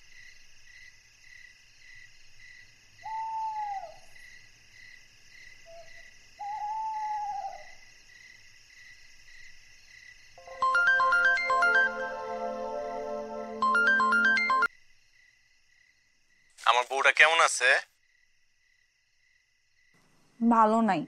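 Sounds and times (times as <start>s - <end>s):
insects chirring: 0.0s - 10.5s, 14.7s - 21.0s
owl hooting: 3.0s - 4.1s, 5.7s - 7.8s.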